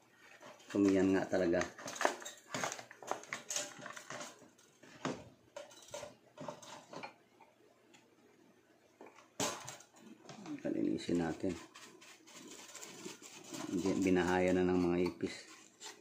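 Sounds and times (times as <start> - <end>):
toaster being handled clattering: 0.4 - 7.2, 9.4 - 10.0.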